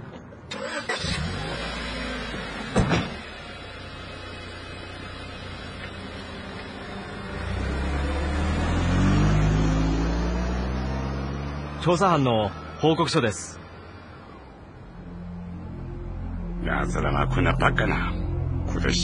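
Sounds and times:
car engine revving: 0.5s - 19.0s
car engine idling: 0.6s - 9.1s, 11.9s - 19.0s
car door shutting: 2.6s - 3.3s.

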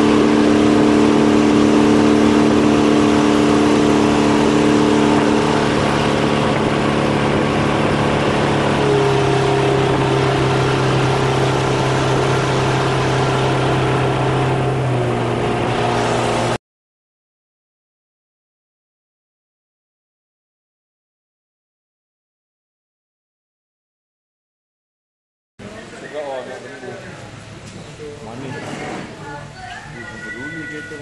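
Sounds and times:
boat engine running: 0.0s - 16.6s.

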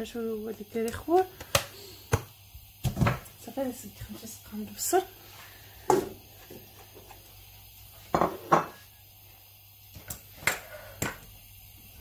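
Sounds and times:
onion dropping into pot: 1.4s - 3.3s.

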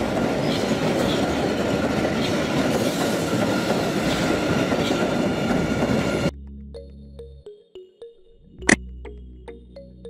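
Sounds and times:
subway wheels rumbling on rails: 0.0s - 6.3s.

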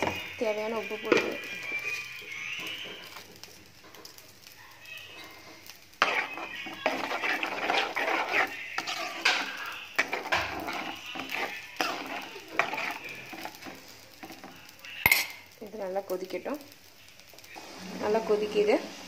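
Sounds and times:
spoon scraping metal pot: 0.0s - 3.3s, 6.0s - 15.4s.

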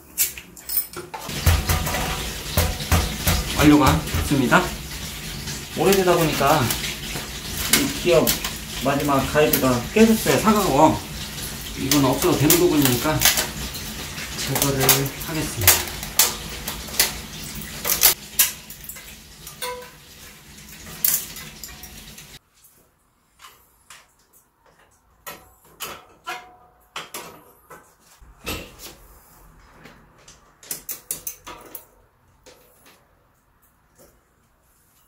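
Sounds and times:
clicks and knocks of bicycle work: 0.1s - 4.4s, 11.1s - 20.0s, 23.4s - 29.0s, 29.7s - 35.0s
wheel knocking against frame: 1.2s - 4.4s.

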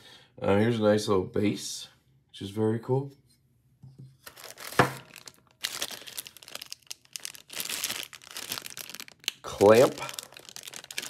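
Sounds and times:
packaging crinkling and rustling: 4.2s - 11.0s.

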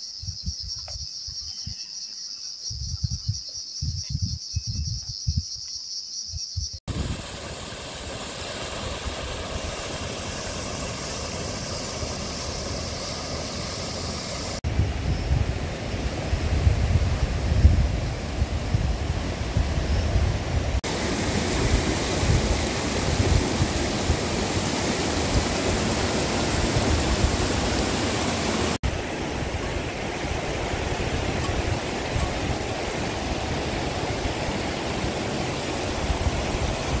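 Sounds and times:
wind rumbling on microphone: 2.6s - 5.6s, 8.6s - 37.0s
mountain stream rushing: 6.9s - 14.7s, 15.6s - 37.0s.

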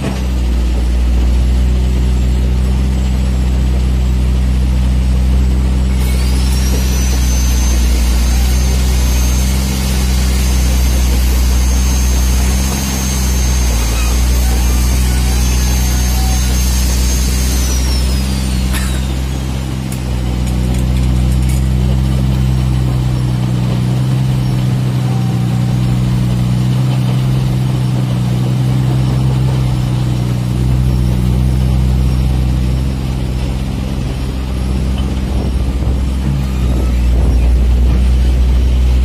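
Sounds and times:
excavator diesel engine running: 0.0s - 39.0s
high thin whine falling in pitch: 5.9s - 21.2s.

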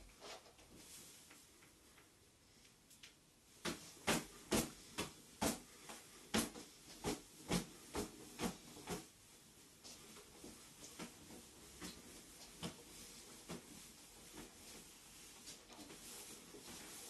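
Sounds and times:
barefoot kicks slapping: 3.6s - 5.6s.

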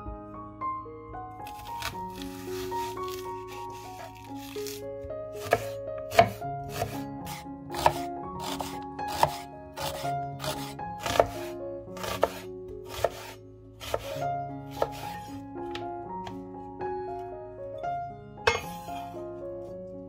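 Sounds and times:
background music: 0.0s - 20.0s
knife chopping on cutting board: 5.4s - 15.3s.

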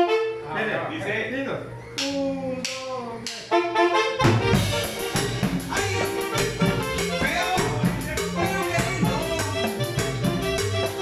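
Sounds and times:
keyboard lead-in: 1.7s - 11.0s
latin dance band playing: 3.4s - 11.0s.

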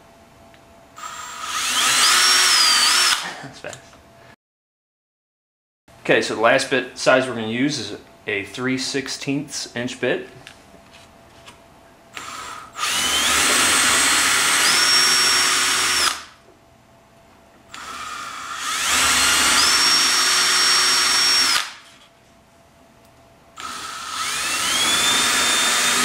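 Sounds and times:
electric drill boring into wood: 1.0s - 3.2s, 12.2s - 16.3s, 17.7s - 21.8s, 23.6s - 26.0s.

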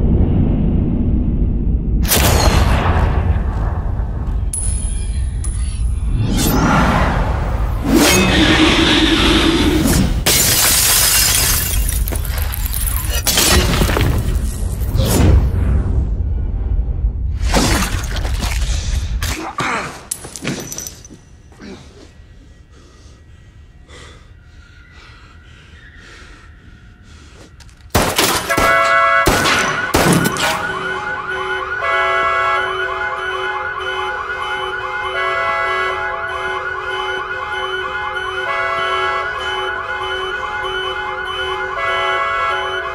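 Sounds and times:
loud bangs: 27.9s - 31.7s
car alarm electronic tones: 28.7s - 42.9s.

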